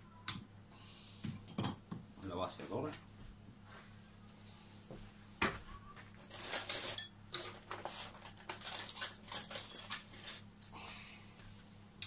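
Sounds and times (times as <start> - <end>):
metal objects clinking and rattling: 6.2 - 10.5.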